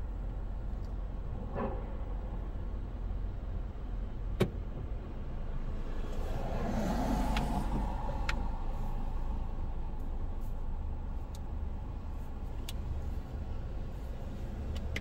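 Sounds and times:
traffic rumble: 0.0 - 15.0
car passing by: 5.6 - 9.9.

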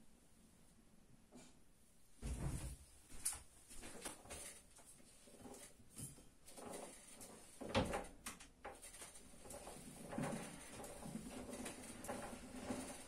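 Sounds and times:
gearing clicking and rattling: 6.5 - 13.0.

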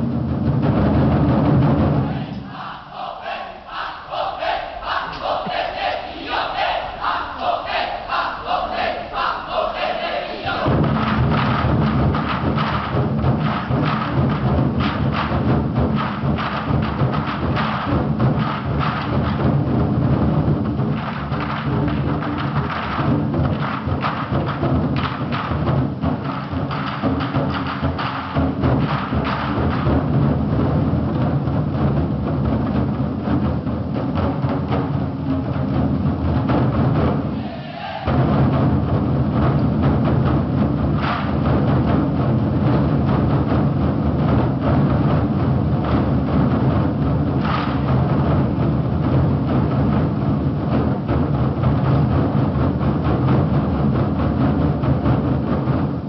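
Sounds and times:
large drums ensemble drumming: 0.0 - 56.0.

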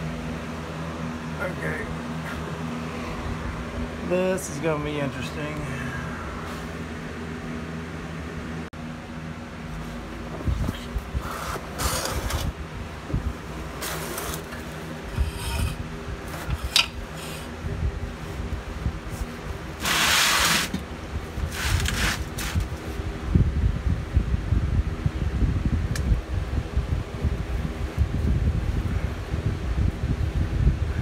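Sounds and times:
steady low hum: 0.0 - 31.0
rustling and scraping on creeper: 13.6 - 17.5, 18.2 - 20.8, 21.4 - 23.0.

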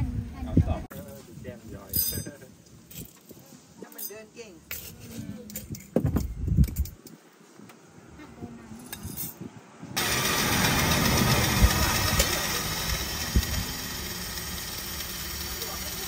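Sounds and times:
electric coffee grinder grinding: 10.0 - 16.0.

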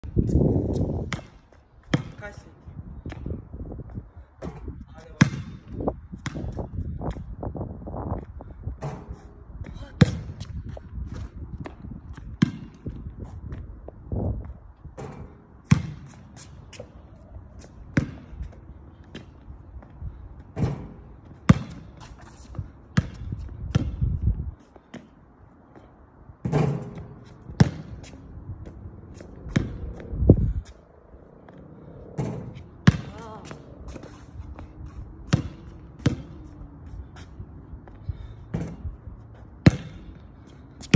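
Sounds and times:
steady low rumble: 0.0 - 40.9
basketball bouncing on hard court: 1.0 - 2.4, 4.4 - 7.2, 9.7 - 13.6, 15.0 - 16.2, 17.9 - 19.3, 20.6 - 22.1, 23.0 - 24.2, 26.4 - 28.8, 29.5 - 30.0, 32.2 - 34.1, 35.3 - 36.5, 39.6 - 40.2
basketball striking the hoop: 15.0 - 16.1, 20.6 - 21.9, 26.4 - 28.0, 32.2 - 33.5, 39.6 - 40.1.

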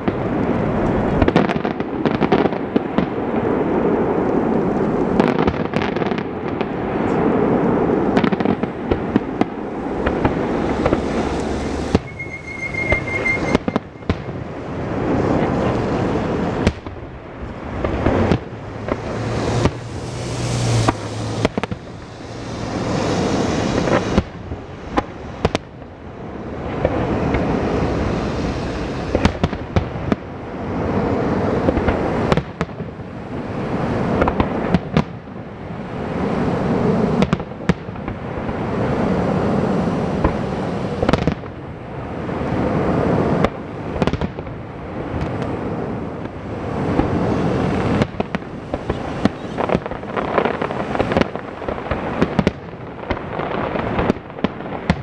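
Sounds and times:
dense rumbling noise: 0.0 - 5.2, 6.2 - 37.2, 37.9 - 54.4
fireworks bursting bangs: 0.0 - 55.0.

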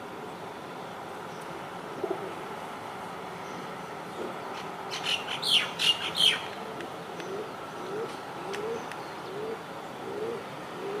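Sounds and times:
bird low rising hoots: 4.2 - 11.0
bird high chirps: 4.9 - 6.5.

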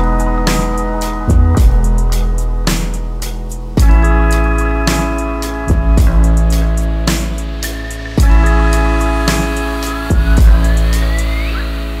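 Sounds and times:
electronic background music: 0.0 - 12.0
deep bass hits: 1.3 - 3.2, 5.7 - 7.4
thin tone gliding upward: 6.6 - 12.0.

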